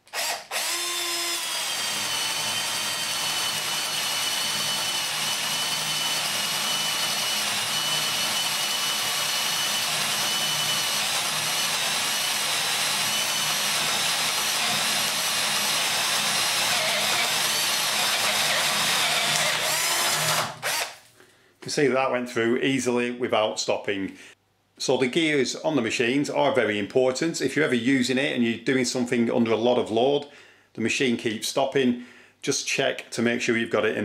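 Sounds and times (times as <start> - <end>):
power drill boring through wood: 0.0 - 21.0.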